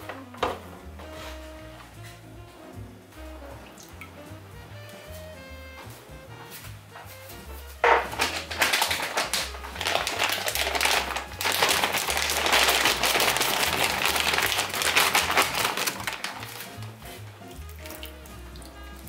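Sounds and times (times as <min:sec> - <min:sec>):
background music with low bass: 0:00.0 - 0:19.0
plastic bag crinkling: 0:07.8 - 0:17.0.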